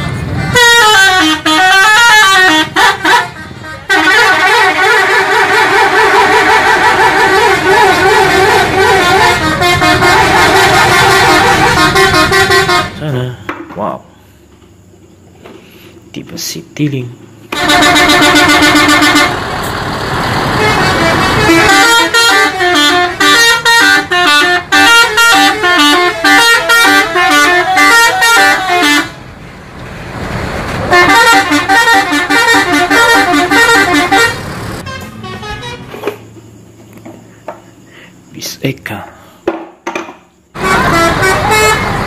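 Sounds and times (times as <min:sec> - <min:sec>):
bus musical horn: 0:00.0 - 0:13.2, 0:17.5 - 0:29.4, 0:30.8 - 0:36.6, 0:40.6 - 0:42.0
engine and street noise: 0:00.0 - 0:42.0.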